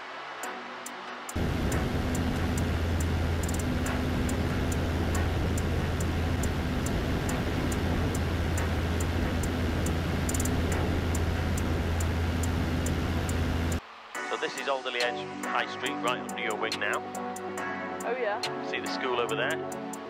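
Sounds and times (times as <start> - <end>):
light aircraft engine drone: 1.3 - 13.8
wind rushing over microphone: 1.4 - 13.8.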